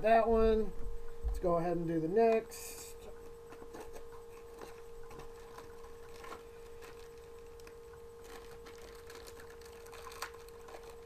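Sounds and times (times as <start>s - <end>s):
steady electrical hum: 0.0s - 11.0s
packaging crinkling and clicks: 3.2s - 11.0s.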